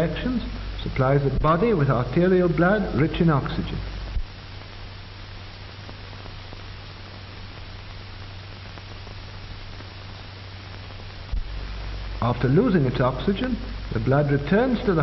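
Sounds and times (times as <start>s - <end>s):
film soundtrack hiss: 0.0s - 15.0s
low hum: 0.0s - 15.0s.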